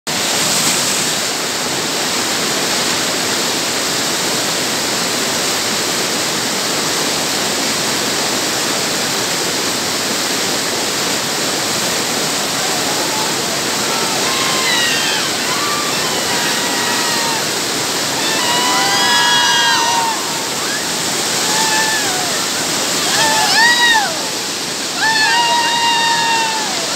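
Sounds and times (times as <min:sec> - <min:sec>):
whitewater rushing over rocks: 0:00.1 - 0:26.9
people shouting and whooping: 0:12.1 - 0:26.9.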